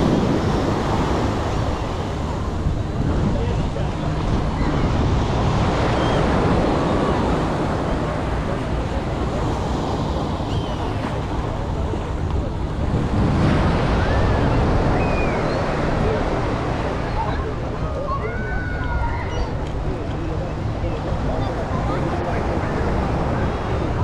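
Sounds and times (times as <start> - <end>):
sea waves breaking on beach: 0.0 - 24.0.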